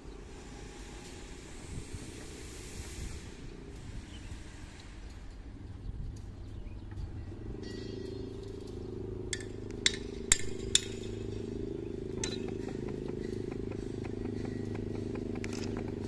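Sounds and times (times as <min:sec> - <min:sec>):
diesel locomotive idling: 0:00.0 - 0:16.0
sharp metallic clinks: 0:06.1 - 0:16.0.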